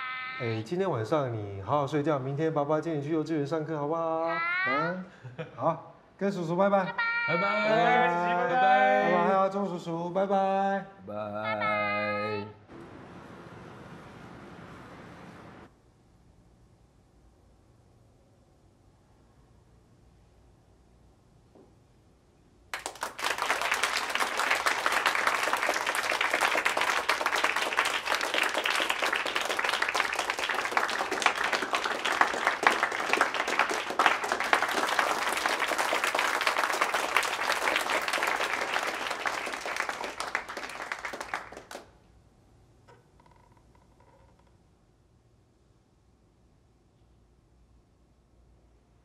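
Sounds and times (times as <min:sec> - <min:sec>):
audience applauding: 0:22.8 - 0:41.9.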